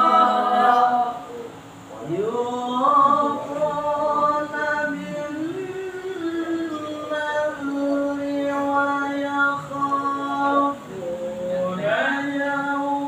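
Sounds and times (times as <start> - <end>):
man chanting recitation: 0.0 - 13.0.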